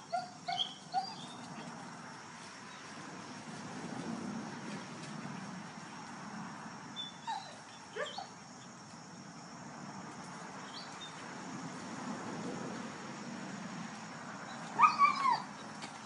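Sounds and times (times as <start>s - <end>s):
dogs yipping and whimpering: 0.0s - 1.6s, 7.0s - 8.4s, 14.5s - 15.8s.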